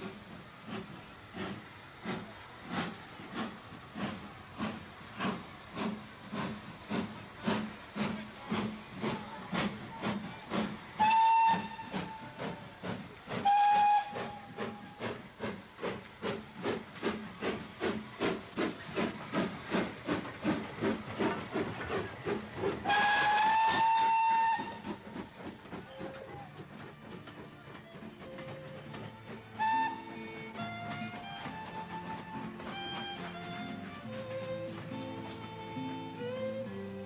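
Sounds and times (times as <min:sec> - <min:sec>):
steam locomotive exhaust chuffing: 0:00.0 - 0:37.0
steam whistle blasts: 0:10.6 - 0:15.2, 0:22.8 - 0:25.1, 0:27.9 - 0:37.0.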